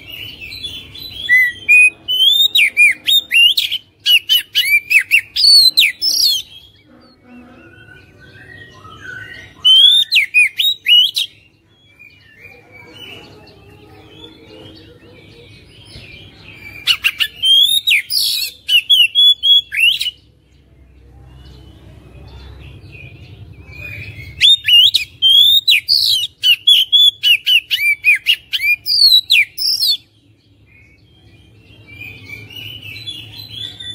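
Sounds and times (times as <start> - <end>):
bird singing whistles: 1.0 - 6.5, 7.8 - 11.3, 16.8 - 20.2, 24.2 - 30.0.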